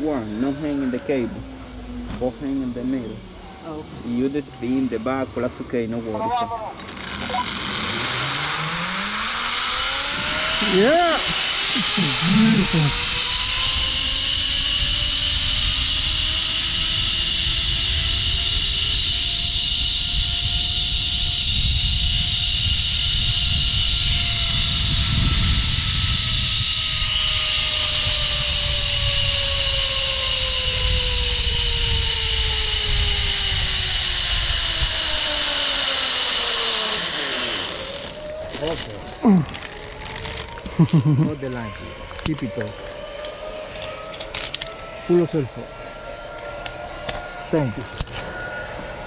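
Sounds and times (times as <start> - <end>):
pulleys whining on steel cable: 0.0 - 49.0
wind buffeting microphone: 10.0 - 39.5.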